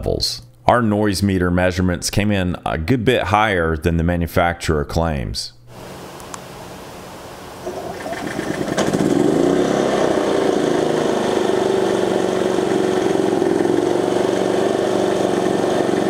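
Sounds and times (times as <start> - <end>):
generator engine starting and running: 5.7 - 16.0.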